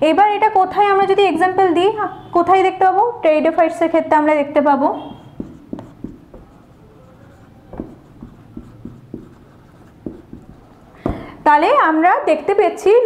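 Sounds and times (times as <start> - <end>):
marker writing on whiteboard: 5.0 - 11.7
marker tip tapping board: 5.2 - 11.4.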